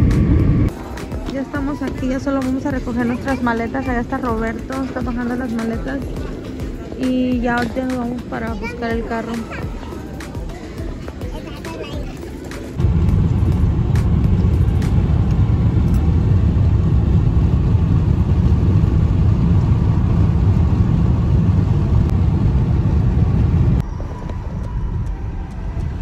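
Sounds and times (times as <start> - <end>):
car road and engine rumble: 12.7 - 26.0.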